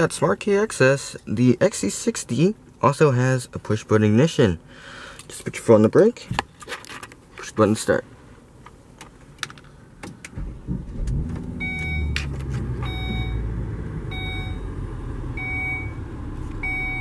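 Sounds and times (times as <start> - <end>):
ignition clicks: 8.6 - 13.5
car engine starting and idling: 9.2 - 17.0
car electronic chime: 11.6 - 12.2, 12.8 - 13.5, 14.1 - 14.8, 15.4 - 16.0, 16.6 - 17.0.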